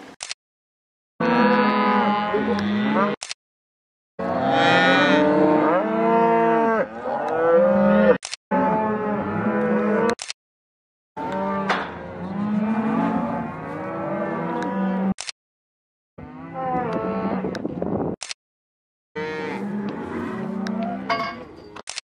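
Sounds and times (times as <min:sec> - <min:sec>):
cattle mooing and bawling: 0:01.2 - 0:03.2, 0:04.2 - 0:10.2, 0:11.2 - 0:15.2, 0:16.2 - 0:17.7, 0:19.2 - 0:21.2.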